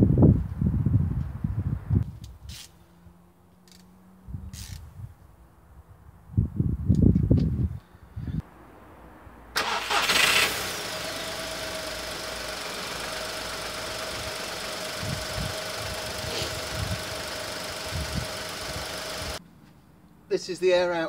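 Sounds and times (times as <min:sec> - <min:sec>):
car engine starting and idling: 0:09.5 - 0:19.4.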